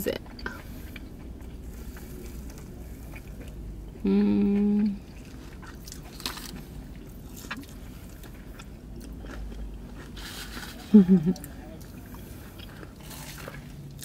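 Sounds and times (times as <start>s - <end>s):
faint chewing: 0.2s - 14.0s
woman humming: 4.0s - 5.0s.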